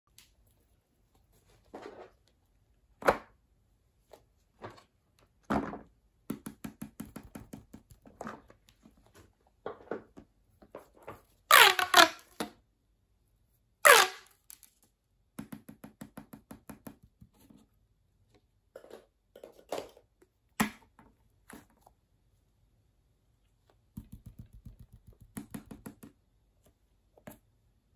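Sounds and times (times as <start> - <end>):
pop tube zipping: 11.5 - 12.2, 13.9 - 14.3.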